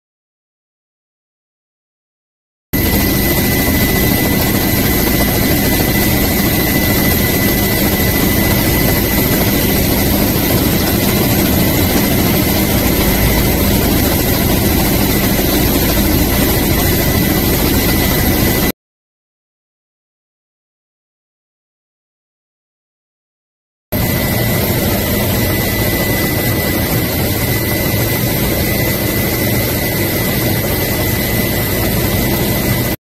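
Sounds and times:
helicopter engine and rotor: 2.8 - 18.8, 24.0 - 33.0.

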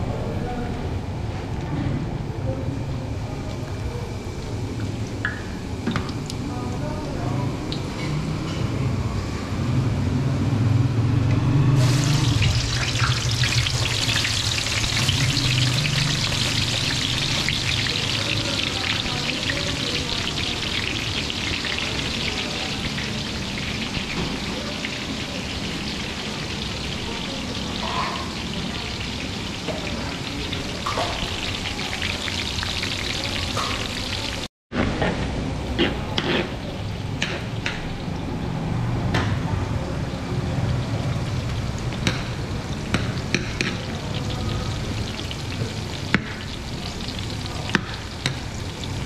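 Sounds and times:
onions sizzling in hot oil: 11.7 - 34.5, 39.9 - 49.0.

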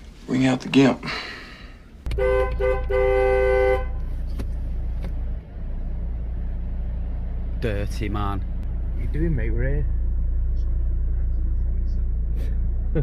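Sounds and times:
car engine idling: 1.0 - 13.0
car horn beeping: 2.1 - 4.3.

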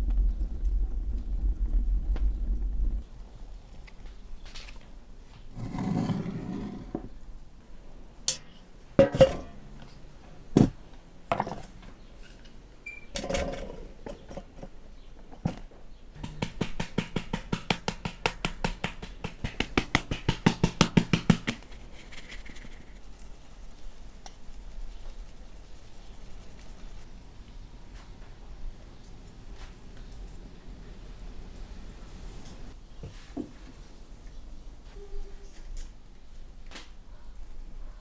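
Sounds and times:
flour sieve tapping: 16.2 - 22.4.

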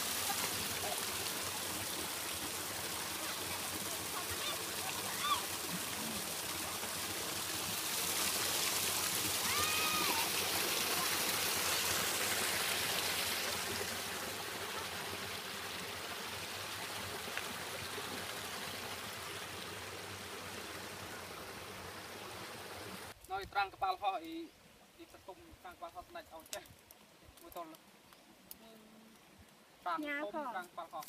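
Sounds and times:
stream rushing over rocks: 0.0 - 23.2.

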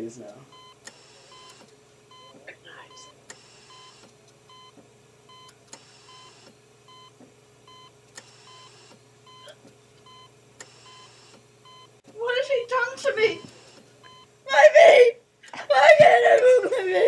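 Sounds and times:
steady low hum: 0.0 - 17.0
short electronic beeps: 0.6 - 11.9.

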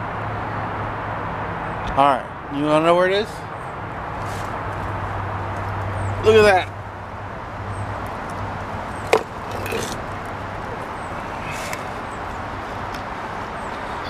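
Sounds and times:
stone knocking against stone wall: 9.1 - 10.0.

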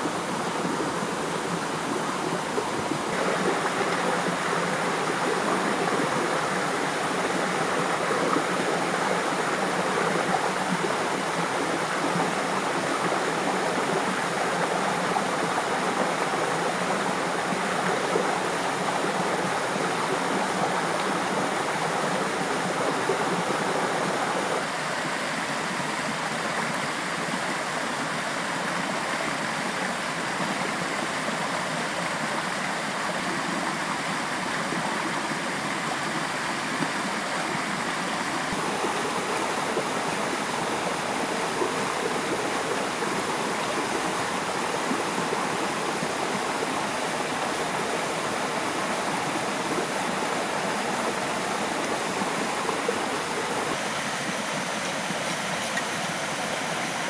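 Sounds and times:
river water rushing: 0.0 - 57.0.

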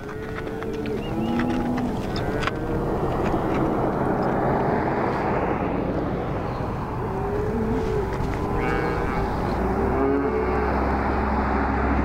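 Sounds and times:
cattle lowing: 0.0 - 12.0
vehicle passing on highway: 0.0 - 12.0.

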